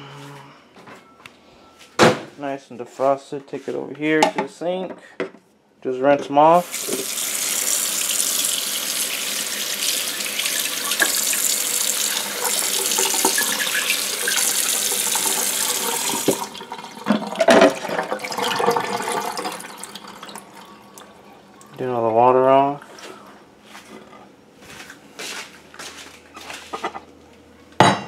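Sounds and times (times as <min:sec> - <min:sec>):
faucet water splashing on fish: 0:06.6 - 0:17.0.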